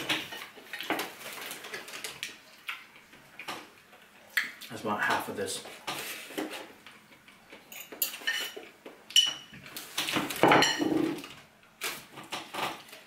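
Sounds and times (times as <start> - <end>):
cutlery scraping on plate: 7.7 - 9.5.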